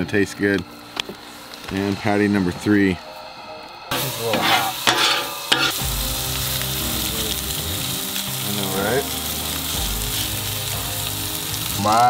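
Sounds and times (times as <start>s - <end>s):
burger patties sizzling on griddle: 3.9s - 12.0s.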